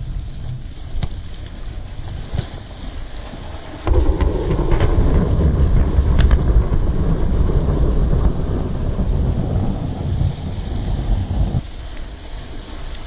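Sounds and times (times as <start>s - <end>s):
wind and rain on microphone: 0.0s - 13.0s
thunder rolling: 3.6s - 11.7s.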